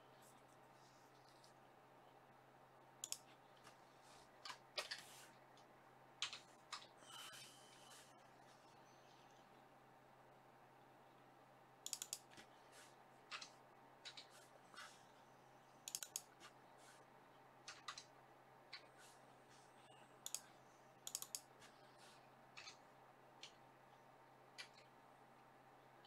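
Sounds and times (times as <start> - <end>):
faint steady hum: 0.0 - 26.0
computer keyboard typing: 11.9 - 12.3, 13.3 - 14.3, 15.9 - 16.4, 17.6 - 18.1, 20.2 - 21.5, 22.6 - 22.8.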